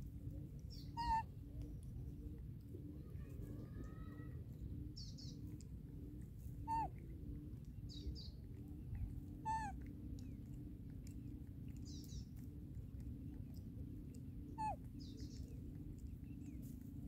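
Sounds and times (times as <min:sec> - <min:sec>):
steady low rumble: 0:00.0 - 0:03.8, 0:04.4 - 0:17.0
small birds chirping: 0:00.0 - 0:17.0
baby monkey crying: 0:01.0 - 0:01.2, 0:06.7 - 0:06.9, 0:09.4 - 0:09.8, 0:14.6 - 0:14.8.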